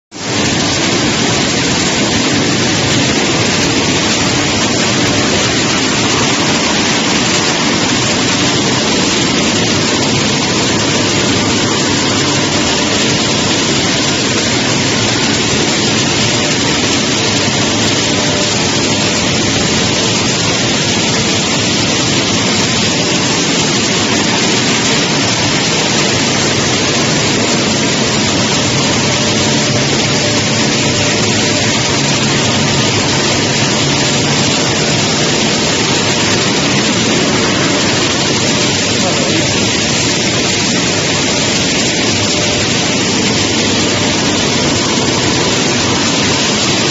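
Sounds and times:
vibrating sieve screen running: 0:00.2 - 0:46.9.

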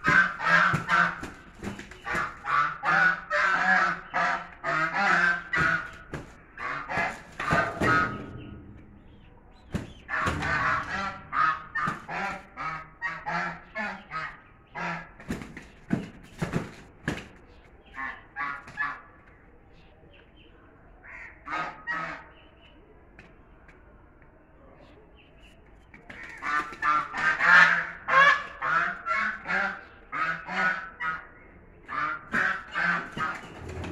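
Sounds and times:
geese honking: 0:00.0 - 0:09.1, 0:09.9 - 0:15.2, 0:26.4 - 0:33.9.

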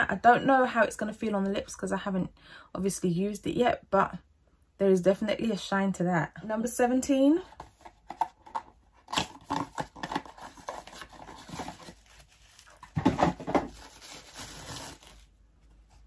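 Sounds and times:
cardboard rustling and tearing: 0:07.6 - 0:16.0.

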